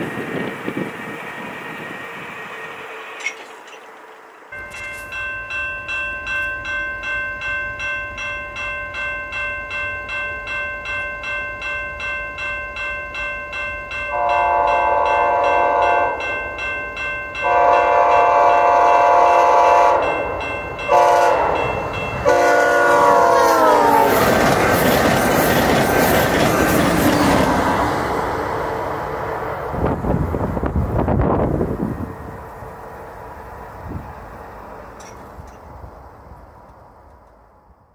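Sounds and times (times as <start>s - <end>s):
railway crossing bell ringing: 0.0s - 36.4s
train wheels on rails: 0.0s - 37.9s
train horn blasts: 14.1s - 16.4s, 17.4s - 24.3s.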